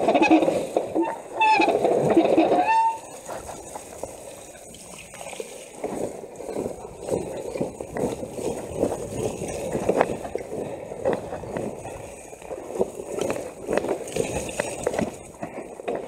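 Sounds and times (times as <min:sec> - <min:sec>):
rumbling tyre noise: 0:00.0 - 0:16.0
bike knocks and rattles: 0:05.8 - 0:16.0.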